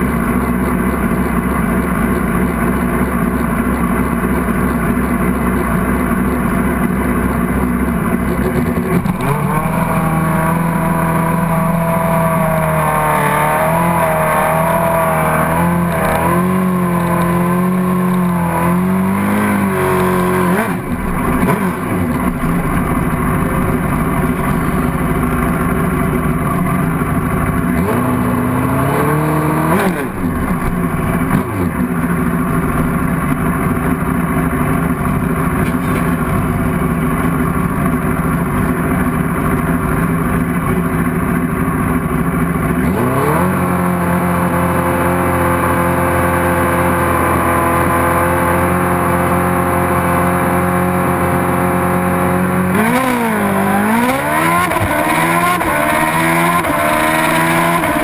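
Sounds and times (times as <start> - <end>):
motorcycle engine revving and idling: 0.0 - 58.0
motorcycle launching: 8.2 - 38.0, 52.3 - 58.0.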